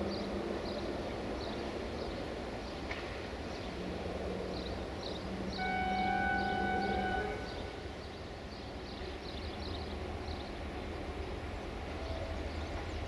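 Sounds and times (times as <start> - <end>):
diesel locomotive idling: 3.5 - 13.0
multi-tone locomotive horn: 5.5 - 7.9.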